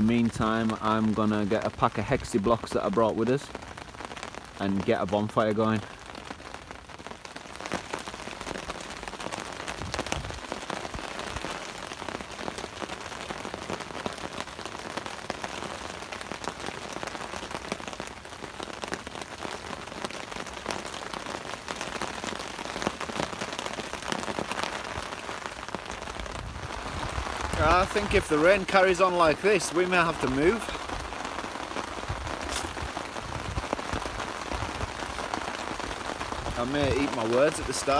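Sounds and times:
heavy rain on a tarp: 0.0 - 37.9.

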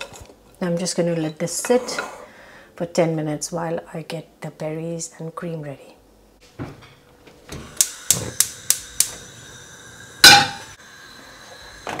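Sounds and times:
loud metallic clank: 10.2 - 10.8.

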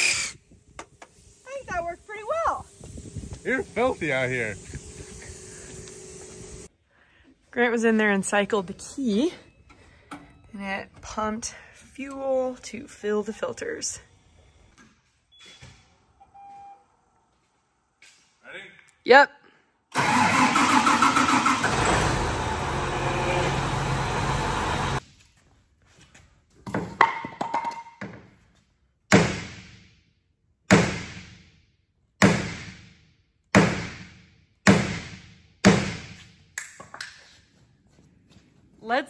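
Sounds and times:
tractor diesel engine running: 20.0 - 25.0.

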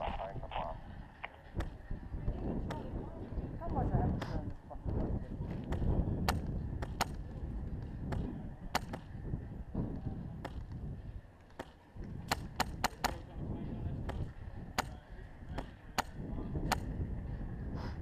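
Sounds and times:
wind on microphone: 0.0 - 18.0
airsoft rifle shots: 8.1 - 9.1, 11.6 - 13.2.

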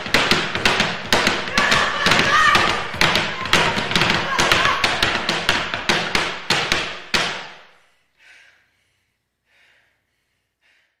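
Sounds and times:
boots stamping on wooden boxes: 0.0 - 7.6.

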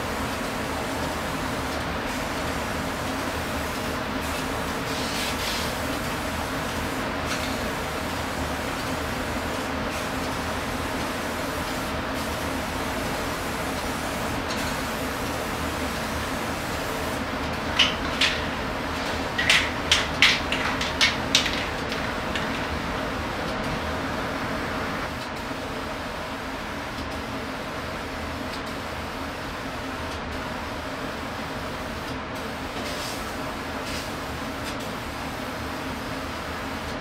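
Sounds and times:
background machinery hum: 0.0 - 37.0
spray-paint can hisses: 4.2 - 5.9.

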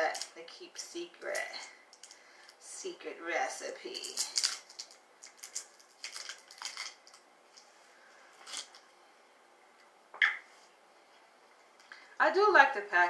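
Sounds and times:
plastic bottle crinkling: 4.0 - 7.7, 8.4 - 8.8
bottle cap clicking: 10.2 - 10.4.

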